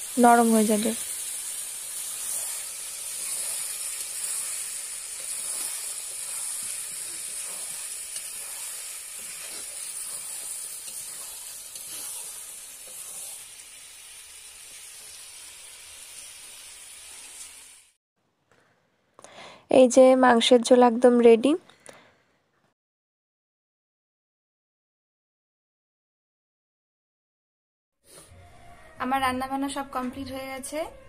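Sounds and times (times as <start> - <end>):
meat and potatoes sizzling in oil: 0.0 - 18.0
metal spatula scraping a pan: 1.2 - 13.5.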